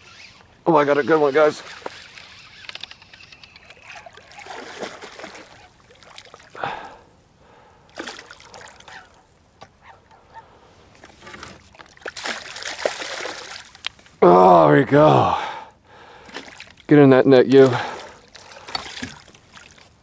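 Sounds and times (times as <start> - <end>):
fish splashing in water: 1.6 - 6.8, 7.9 - 9.2, 11.6 - 13.8, 17.8 - 19.9.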